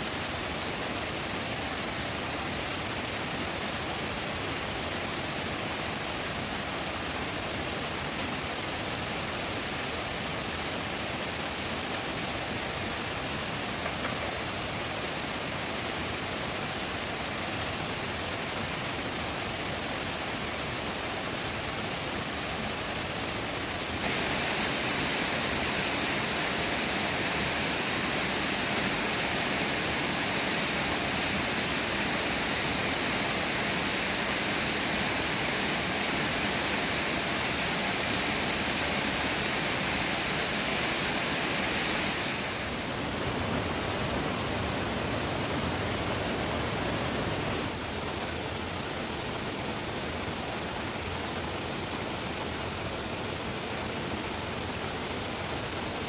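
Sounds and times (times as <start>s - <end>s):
rushing outdoor noise: 0.0s - 56.0s.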